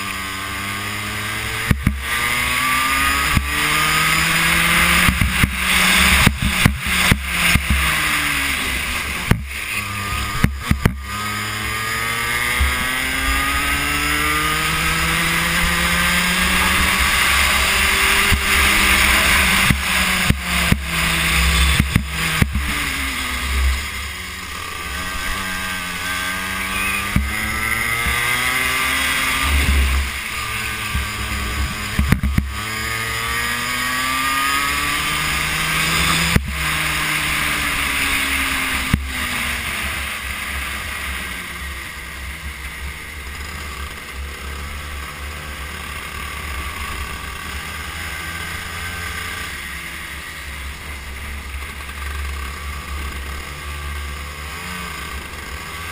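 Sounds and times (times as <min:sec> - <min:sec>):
go-kart engine revving: 0:00.0 - 0:55.9
sharp knocks: 0:21.7 - 0:22.8.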